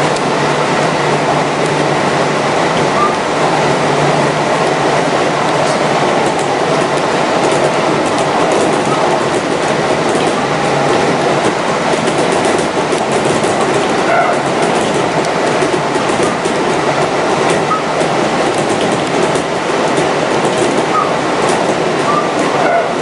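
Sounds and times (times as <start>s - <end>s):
train wheels rumbling on rail: 0.0s - 23.0s
clicks over rail joints: 5.4s - 22.8s.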